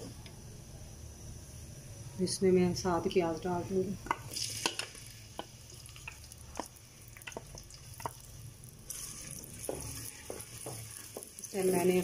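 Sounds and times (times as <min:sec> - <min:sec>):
onion sizzling in oil: 0:02.7 - 0:12.0
seeds popping in hot oil: 0:04.0 - 0:12.0.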